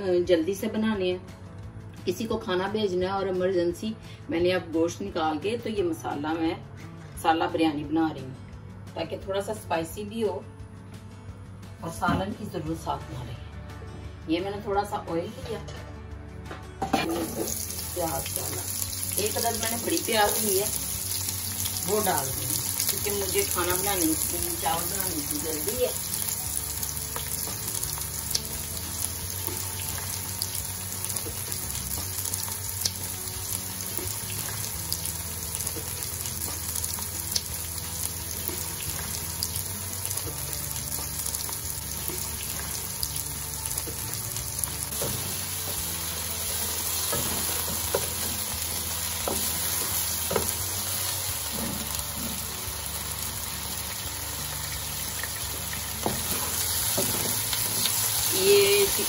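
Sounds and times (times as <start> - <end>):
onion sizzling in oil: 17.1 - 59.0.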